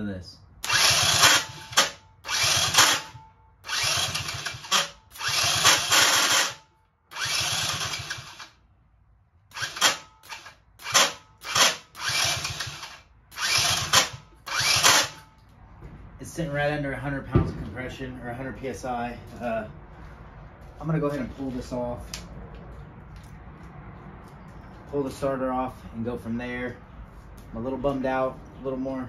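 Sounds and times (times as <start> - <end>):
starter motor cranking engine: 0.6 - 8.6, 9.5 - 15.2.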